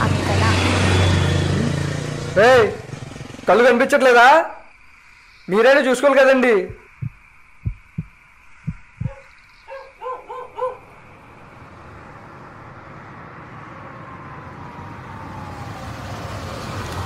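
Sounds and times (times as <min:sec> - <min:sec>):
car approaching: 0:00.0 - 0:04.0, 0:10.7 - 0:17.0
low thumps: 0:06.6 - 0:09.3
dog barking: 0:09.0 - 0:10.9.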